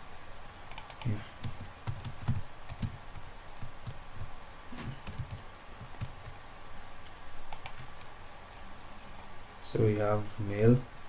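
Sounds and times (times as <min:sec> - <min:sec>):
keyboard typing: 0:00.7 - 0:06.4, 0:07.0 - 0:08.1.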